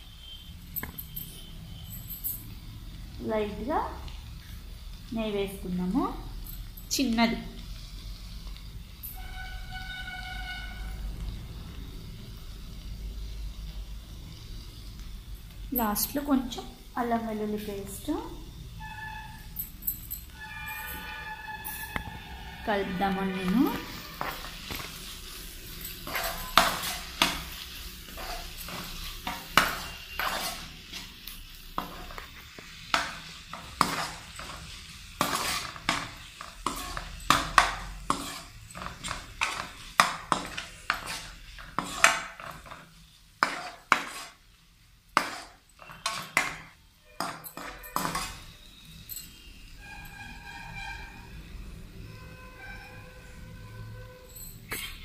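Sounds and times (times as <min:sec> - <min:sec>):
potatoes sizzling in oil: 0:02.4 - 0:19.6, 0:20.3 - 0:49.9
ladle scraping a frying pan: 0:20.4 - 0:44.4, 0:45.2 - 0:48.5.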